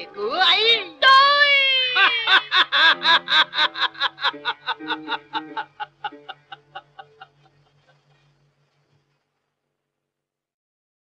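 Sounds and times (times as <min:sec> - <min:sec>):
woman laughing hysterically: 0:01.5 - 0:08.0.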